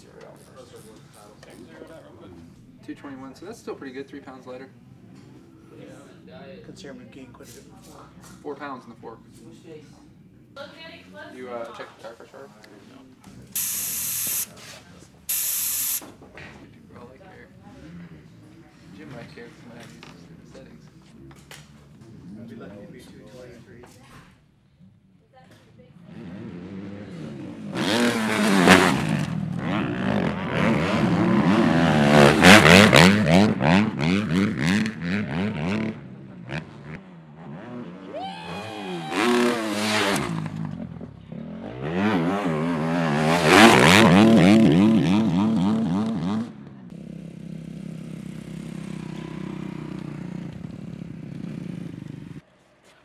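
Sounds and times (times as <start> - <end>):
motocross bikes revving: 13.5 - 14.6, 15.3 - 16.0, 26.0 - 52.4.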